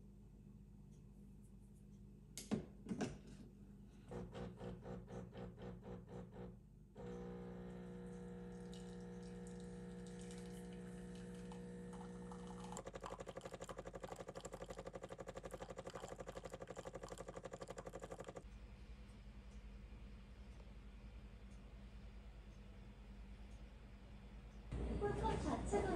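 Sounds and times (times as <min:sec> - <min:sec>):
espresso machine motor hum: 0:04.1 - 0:18.4
water pump pulsing buzz: 0:04.1 - 0:18.4.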